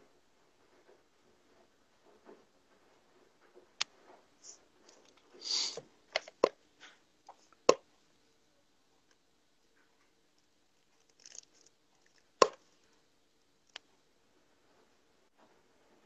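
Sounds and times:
short breathy hiss: 0:05.4 - 0:05.8
mouth and handling noises: 0:09.0 - 0:13.0.

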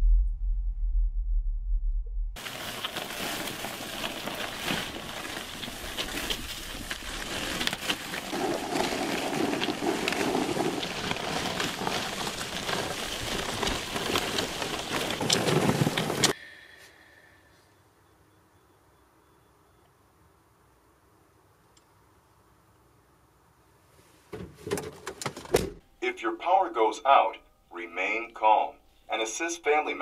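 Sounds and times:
plastic bag dragged over gravel: 0:02.4 - 0:16.4.

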